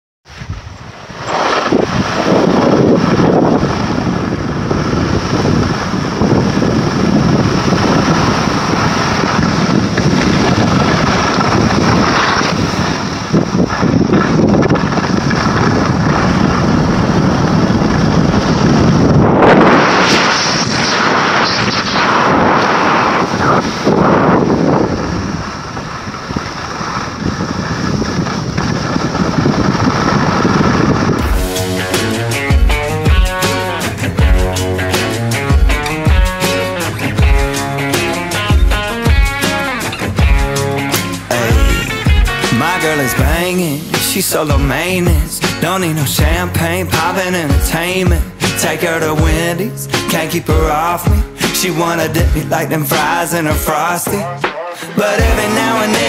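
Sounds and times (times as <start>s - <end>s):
skis hissing on snow: 0.3s - 14.4s, 19.6s - 32.4s
wind buffeting microphone: 0.3s - 49.6s.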